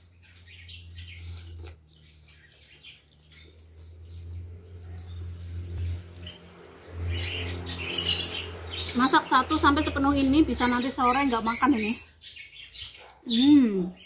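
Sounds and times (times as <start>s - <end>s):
birds chirping: 0.0s - 14.0s.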